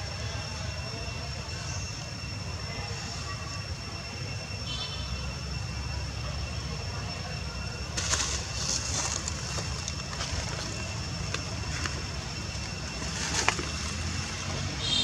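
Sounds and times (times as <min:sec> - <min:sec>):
rustling dry leaves: 0:07.9 - 0:15.0.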